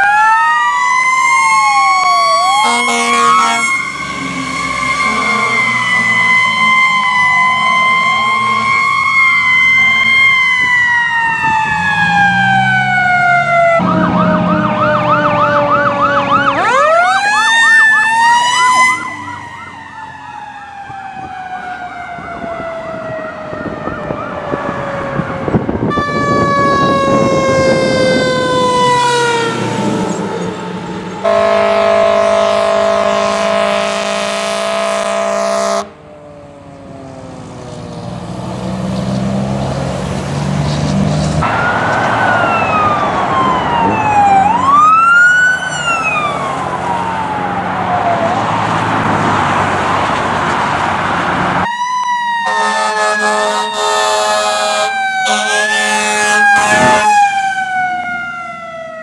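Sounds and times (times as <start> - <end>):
fire engine siren: 0.0 - 59.0
fire truck air horn: 2.4 - 6.3, 25.8 - 30.2, 31.2 - 36.0, 52.4 - 57.6.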